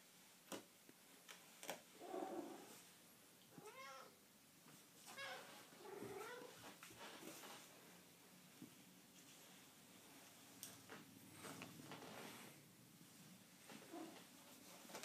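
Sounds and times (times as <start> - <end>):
cat meowing: 3.6 - 4.2.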